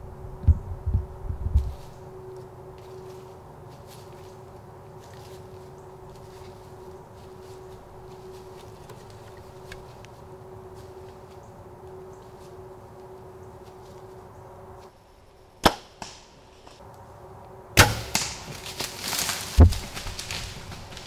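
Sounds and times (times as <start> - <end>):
deer crashing through dry leaves: 17.8 - 21.0.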